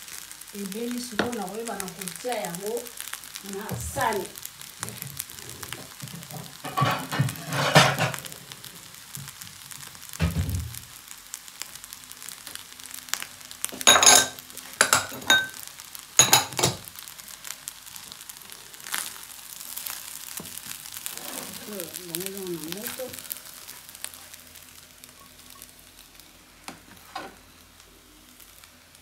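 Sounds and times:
food sizzling in a frying pan: 0:00.0 - 0:29.0
spatula scraping a pan: 0:04.8 - 0:08.3, 0:26.7 - 0:27.4.

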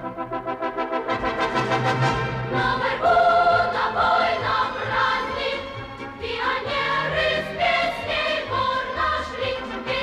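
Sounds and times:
choir singing held notes: 0:02.2 - 0:10.0.

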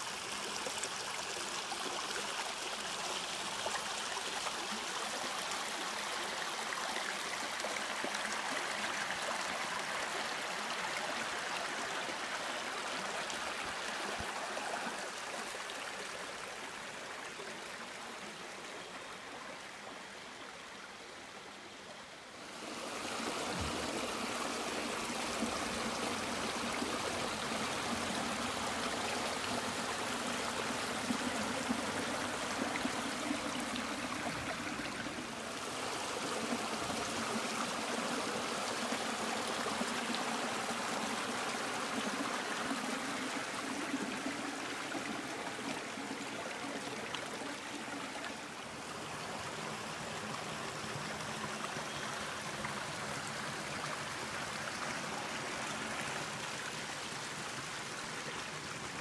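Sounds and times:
brook trickling over stones: 0:22.4 - 0:59.0.

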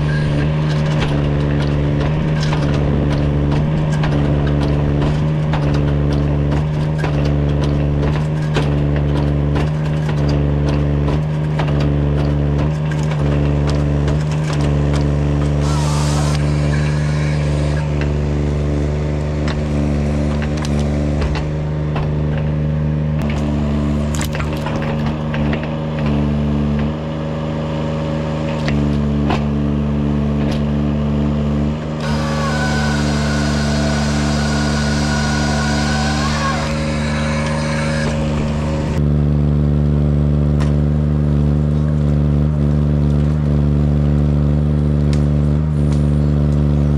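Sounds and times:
saw whining: 0:00.0 - 0:06.4, 0:15.4 - 0:21.9, 0:32.0 - 0:39.0
forestry machine engine under load: 0:00.0 - 0:46.9.

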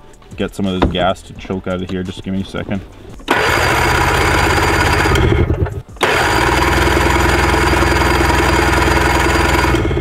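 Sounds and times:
snowmobile engine cranking: 0:03.2 - 0:10.0.

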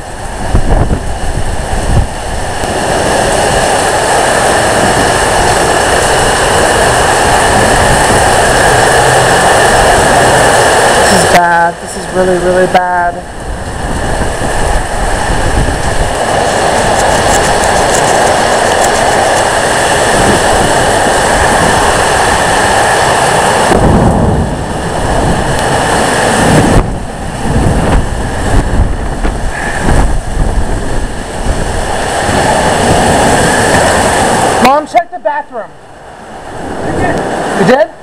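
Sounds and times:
wind buffeting microphone: 0:00.0 - 0:34.8, 0:35.7 - 0:38.0
heavy rain: 0:00.0 - 0:38.0
storm wind rushing: 0:00.0 - 0:38.0.

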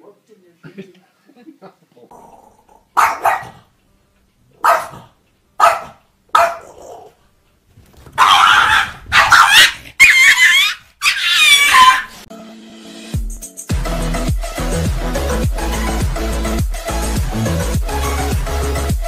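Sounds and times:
small dog barking and yelping: 0:02.9 - 0:03.7, 0:04.6 - 0:07.1, 0:08.2 - 0:12.3.

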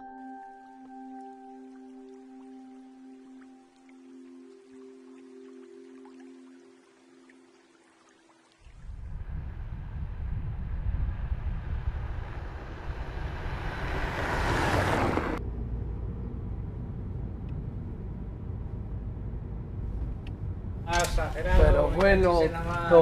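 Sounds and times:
car driving on dirt road: 0:09.2 - 0:23.0
engine and road noise in car cabin: 0:12.0 - 0:21.4.

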